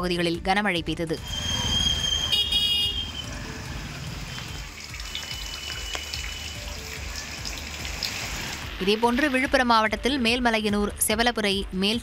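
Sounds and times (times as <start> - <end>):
rain: 2.9 - 9.5
running water: 3.2 - 9.6.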